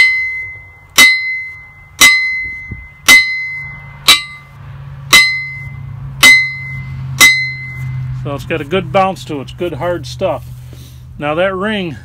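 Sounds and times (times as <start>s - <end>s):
hammer ringing on steel anvil: 0.0s - 4.5s, 5.1s - 7.9s.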